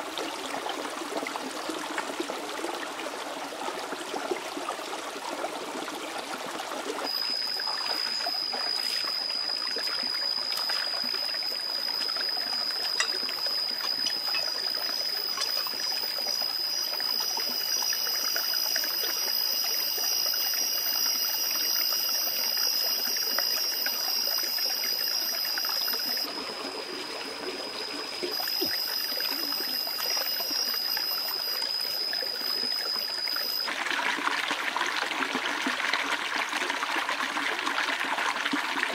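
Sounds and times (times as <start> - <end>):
stream trickling over stones: 0.0 - 38.9
steady high-pitched whine: 6.9 - 33.8.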